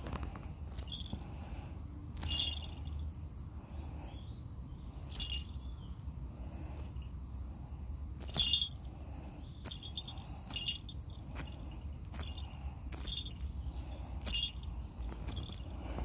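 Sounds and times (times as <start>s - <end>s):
small bells jingling: 0.7s - 1.2s, 2.2s - 3.1s, 5.1s - 5.6s, 8.2s - 8.9s, 9.6s - 13.6s, 14.2s - 15.9s.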